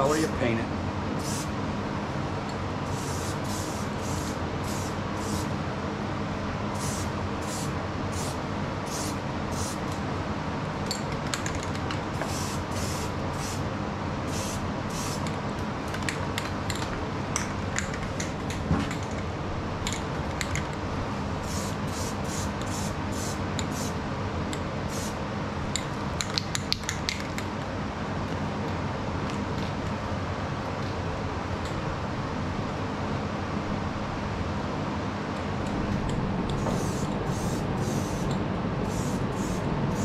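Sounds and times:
steady background hum: 0:00.0 - 0:40.0
spray paint can hissing: 0:01.2 - 0:01.5, 0:02.9 - 0:05.5, 0:06.8 - 0:09.9, 0:12.2 - 0:13.6, 0:14.3 - 0:15.3, 0:21.4 - 0:24.0, 0:24.9 - 0:25.2, 0:36.6 - 0:40.0.

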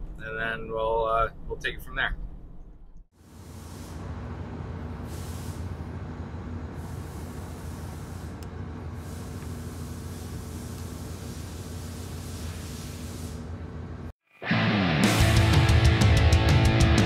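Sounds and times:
hiss: 0:03.4 - 0:04.1, 0:05.0 - 0:05.7, 0:06.8 - 0:08.4, 0:09.0 - 0:13.5.

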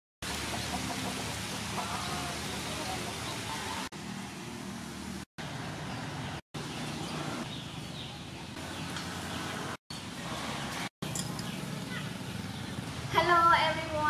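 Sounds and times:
rain hissing: 0:00.2 - 0:05.2.

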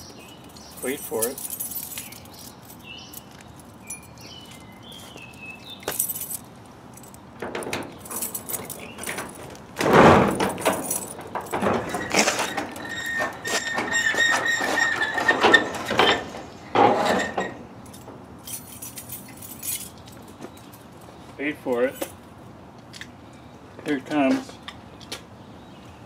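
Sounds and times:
keys and door latch clicking: 0:00.4 - 0:09.6
metal shed door banging: 0:07.4 - 0:18.2
metal door rattling: 0:07.4 - 0:19.7
door high squeak: 0:11.6 - 0:16.3.

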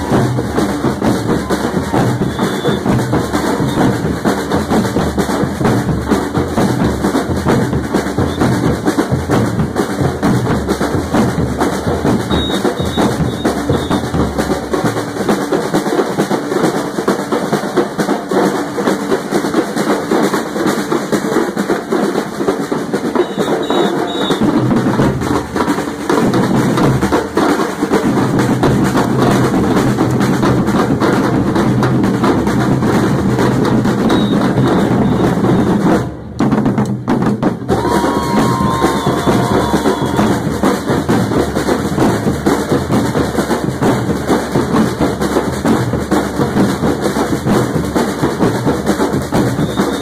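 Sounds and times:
street drum band playing: 0:00.0 - 0:50.0
bass drums struck with mallets: 0:28.0 - 0:50.0.

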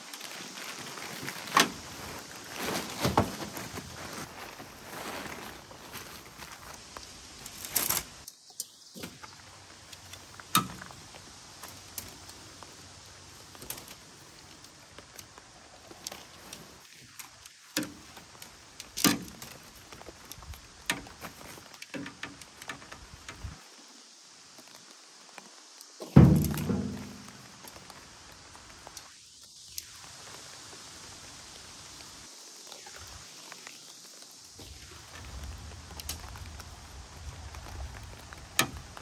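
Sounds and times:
tent fabric rustling: 0:00.0 - 0:08.3, 0:10.1 - 0:23.0
tent poles clinking and knocking: 0:10.0 - 0:11.0, 0:20.8 - 0:23.5, 0:26.0 - 0:27.7.

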